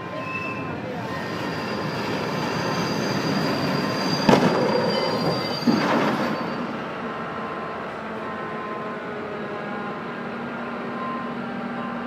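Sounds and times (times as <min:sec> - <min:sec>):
locomotive wheels squealing: 0:00.0 - 0:06.9.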